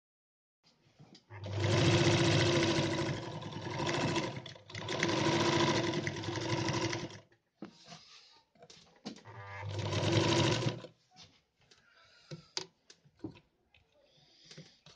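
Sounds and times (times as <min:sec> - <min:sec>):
sewing machine stitching: 0:01.3 - 0:07.3, 0:09.3 - 0:10.9.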